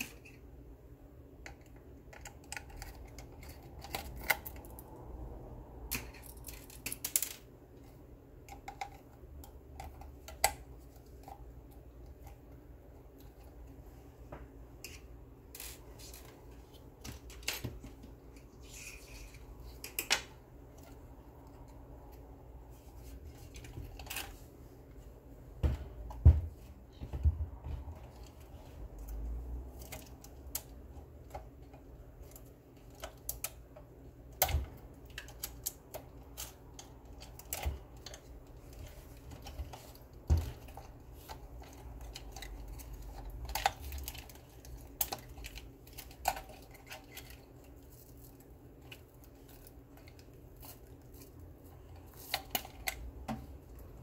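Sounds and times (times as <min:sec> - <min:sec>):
plastic parts clicking: 0:01.4 - 0:05.0, 0:05.9 - 0:07.5, 0:29.8 - 0:54.0.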